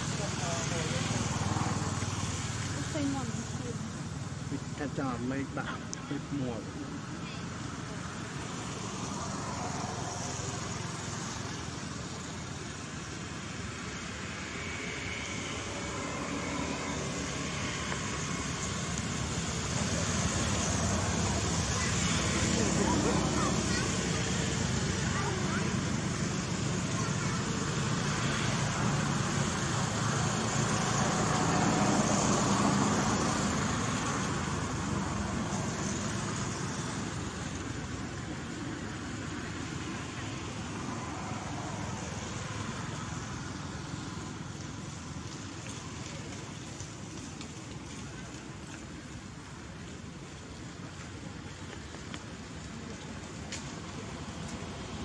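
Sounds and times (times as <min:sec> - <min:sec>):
traffic rumble: 0:00.0 - 0:55.0
vehicle passing: 0:14.3 - 0:37.6.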